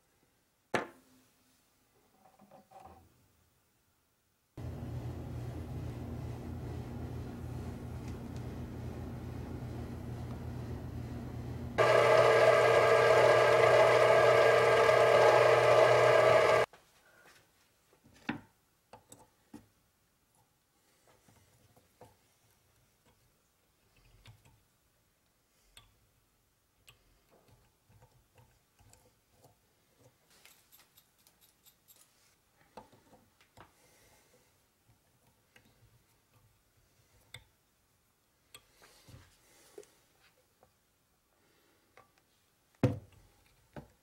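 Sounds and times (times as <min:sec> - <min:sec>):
lathe motor whining: 0:07.8 - 0:16.7.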